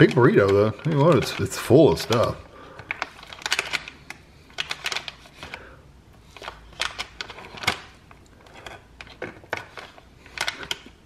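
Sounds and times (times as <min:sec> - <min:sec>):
paper crinkling: 0:00.0 - 0:05.6.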